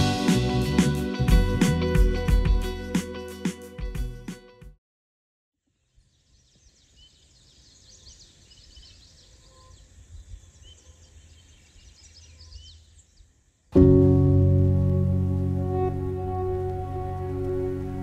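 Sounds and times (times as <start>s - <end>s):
music: 0.0s - 4.8s, 13.8s - 18.0s
distant birds chirping: 5.8s - 14.3s.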